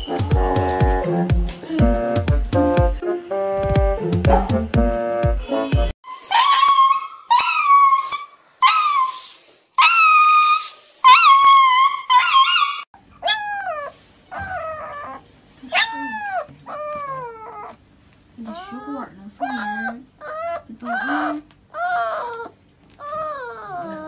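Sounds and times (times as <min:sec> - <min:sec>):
puppies wailing: 0:06.1 - 0:17.8, 0:18.4 - 0:24.0
puppies whimpering: 0:06.1 - 0:17.8, 0:18.4 - 0:24.0.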